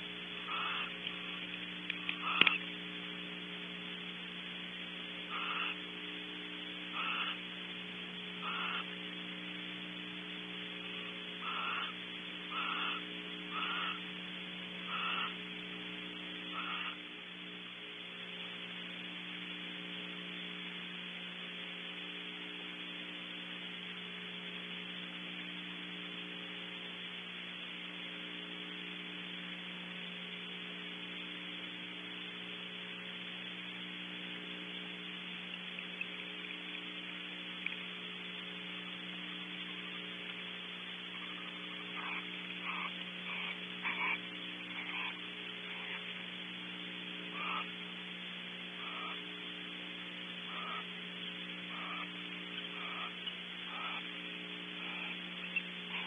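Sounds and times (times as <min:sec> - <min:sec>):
electrical mains hum and hiss: 0:00.0 - 0:56.0
short animal calls: 0:00.4 - 0:01.4, 0:02.0 - 0:02.7, 0:05.3 - 0:05.8, 0:06.9 - 0:07.5, 0:08.4 - 0:09.0, 0:11.4 - 0:14.1, 0:14.8 - 0:15.4, 0:16.5 - 0:17.0, 0:41.1 - 0:46.1, 0:47.3 - 0:47.8, 0:48.7 - 0:49.2, 0:50.4 - 0:51.0, 0:51.6 - 0:56.0.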